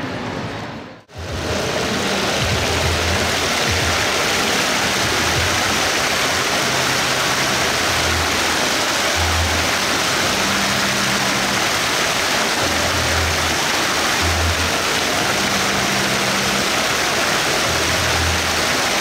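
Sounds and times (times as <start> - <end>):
fountain water splashing: 1.1 - 19.0
low bass music: 1.2 - 11.7.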